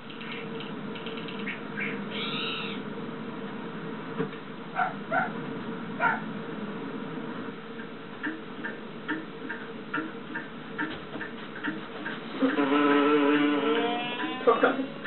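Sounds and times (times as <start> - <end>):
even ticking with low blips: 7.7 - 12.6.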